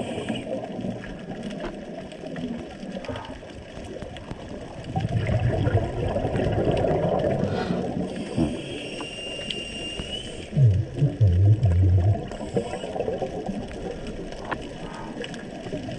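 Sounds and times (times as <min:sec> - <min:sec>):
regulator inhale whistling: 0:00.0 - 0:00.5, 0:07.4 - 0:10.6, 0:12.4 - 0:13.1
underwater regulator bubbly exhale: 0:04.6 - 0:15.9.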